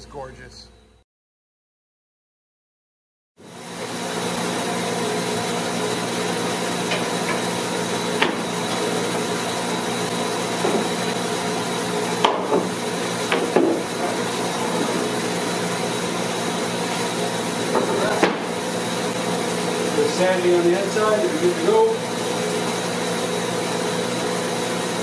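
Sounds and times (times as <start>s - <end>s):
workshop machinery hiss and hum: 3.4s - 25.0s
wooden knocks: 8.2s - 8.5s, 10.6s - 11.0s, 12.2s - 12.7s, 13.3s - 14.2s, 17.7s - 18.5s.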